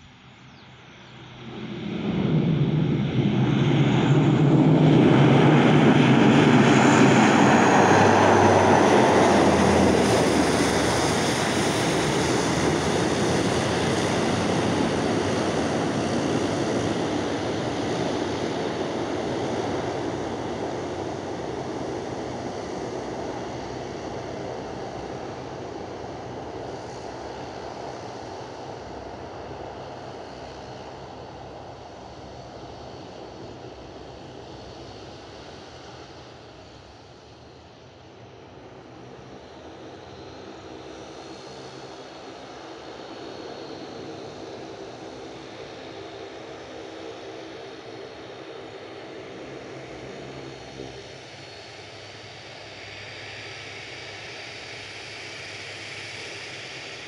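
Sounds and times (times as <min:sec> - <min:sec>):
low propeller hum: 0:00.0 - 0:57.0
turboprop engines roaring: 0:01.2 - 0:57.0.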